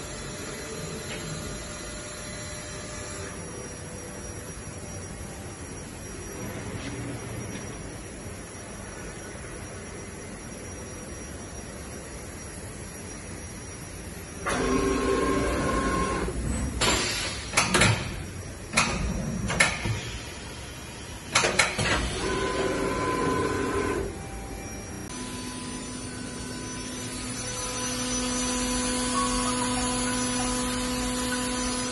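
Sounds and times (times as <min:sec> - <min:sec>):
machine axis drives whining: 0:00.0 - 0:31.9
steady machine hum: 0:00.0 - 0:31.9.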